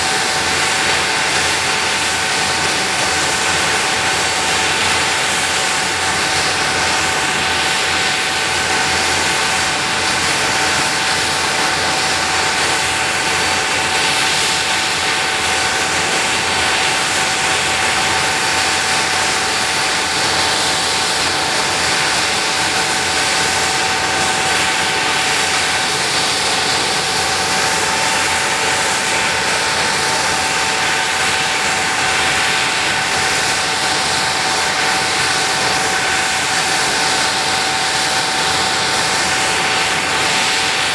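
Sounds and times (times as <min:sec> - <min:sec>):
jet engines running with whine: 0:00.0 - 0:40.9.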